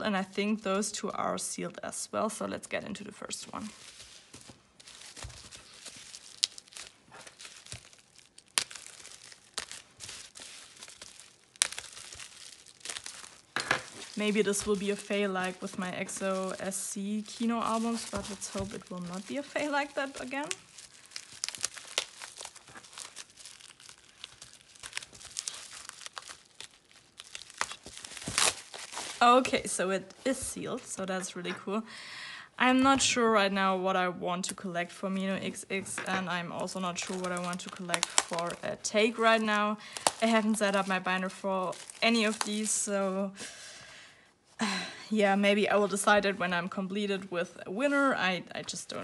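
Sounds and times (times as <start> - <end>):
bubble wrap crinkling: 0.0 - 1.3, 3.2 - 31.3, 35.5 - 43.5
bubble wrap snapping: 3.6 - 30.5, 36.1 - 43.1.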